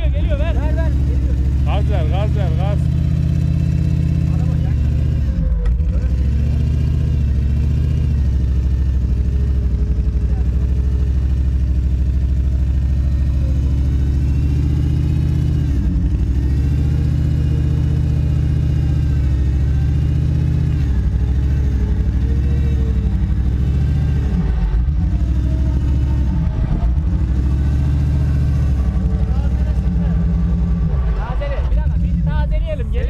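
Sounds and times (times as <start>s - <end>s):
engines running under load: 0.0s - 33.0s.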